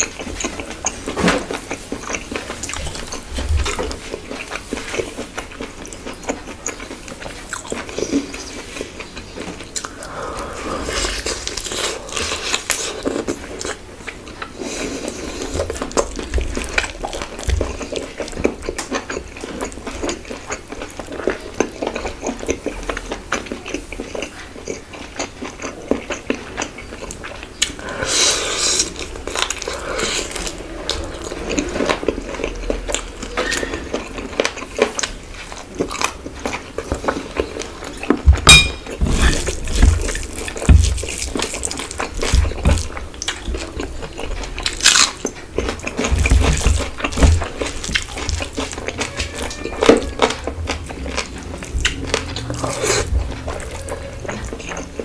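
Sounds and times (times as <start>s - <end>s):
wet chewing and mouth smacks: 0.0s - 55.0s.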